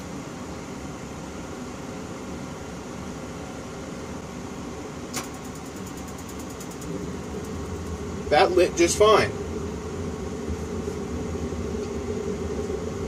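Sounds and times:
furnace blower hum: 0.0 - 13.0
sharp click: 5.1 - 6.9
spark igniter ticking: 5.1 - 8.0.

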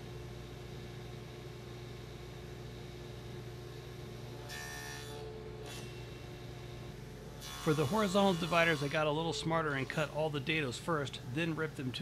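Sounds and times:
saw cutting wood: 4.5 - 6.1, 7.4 - 10.3
table saw running: 7.4 - 12.0.

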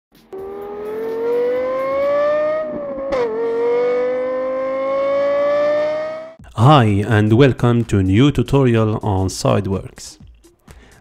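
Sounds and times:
car engine accelerating: 0.2 - 6.4.

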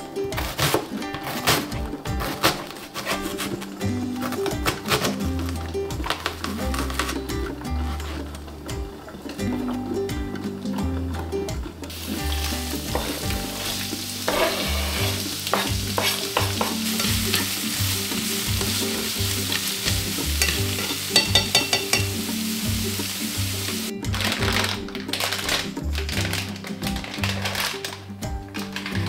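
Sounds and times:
spatula scraping and tapping pan: 11.9 - 23.2
onion sizzling in hot oil: 11.9 - 23.9.

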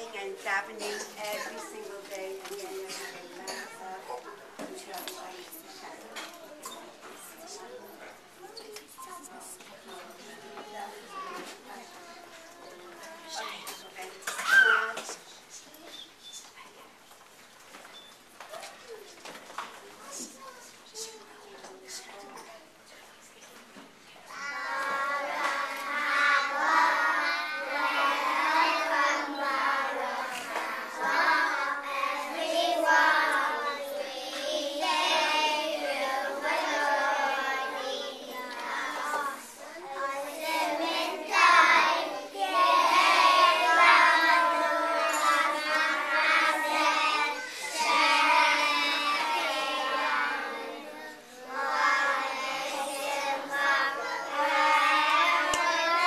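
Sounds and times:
boys singing together: 24.6 - 56.0.

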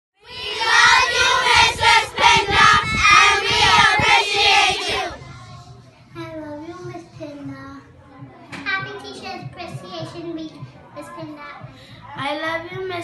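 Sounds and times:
children singing together: 0.2 - 5.2.

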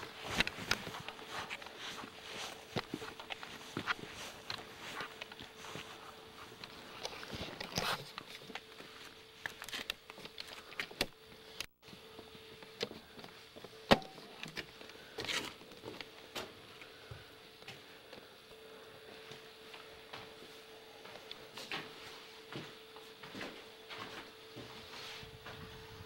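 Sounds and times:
footsteps on stone steps: 0.0 - 9.1
faint steady hum: 0.0 - 26.0.

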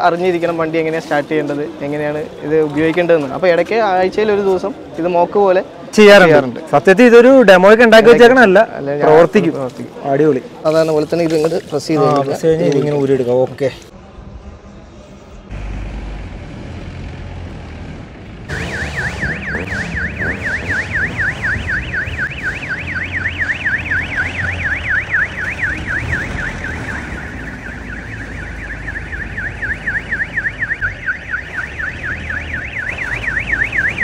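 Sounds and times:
vehicle engine running: 15.3 - 21.6
warbling siren yelp: 18.5 - 34.0.

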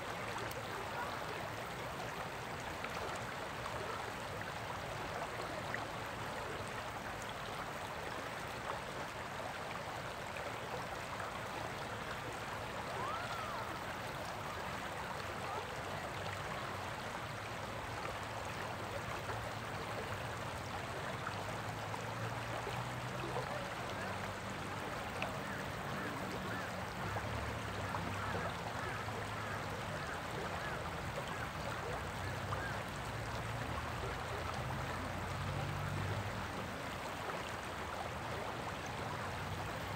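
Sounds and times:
river water running over rocks: 0.0 - 39.9.

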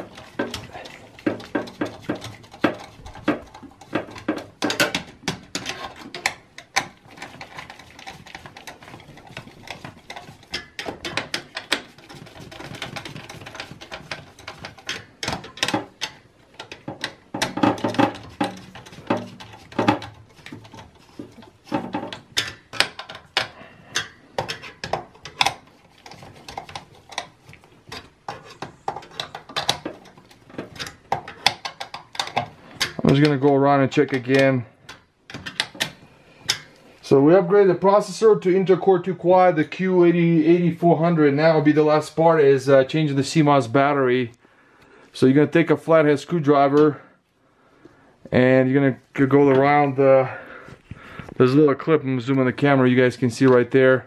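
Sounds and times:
screwdriver clicks and metal scrapes: 0.0 - 37.0.

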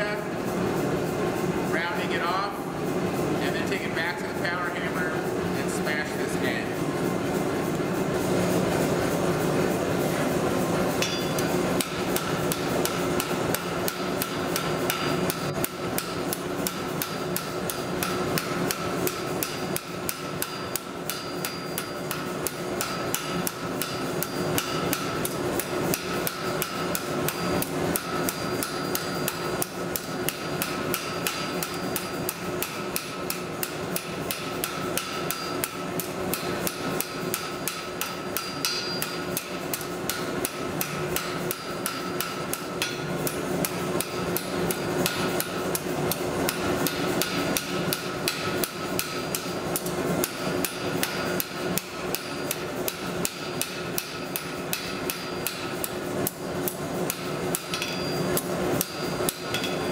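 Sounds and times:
anvil ringing: 11.0 - 11.5, 36.3 - 39.3, 57.6 - 59.9
hammer striking steel on anvil: 11.0 - 59.9.

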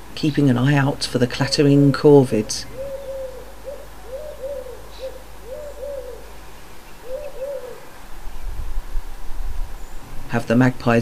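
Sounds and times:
wood pigeon cooing: 1.3 - 6.4, 7.0 - 8.0.

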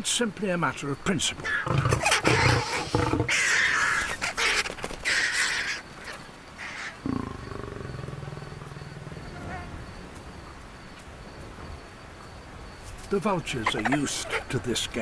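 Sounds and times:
birds flapping: 1.4 - 6.8
lion snarling: 1.5 - 3.5, 7.0 - 10.1
low rough growl: 7.0 - 10.1.

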